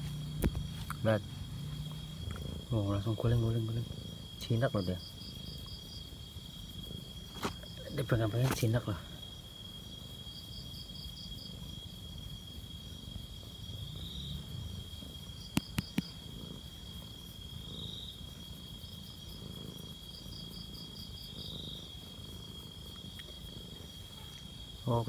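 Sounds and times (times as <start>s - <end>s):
cat purring: 0.0s - 25.0s
crickets trilling: 0.0s - 25.0s.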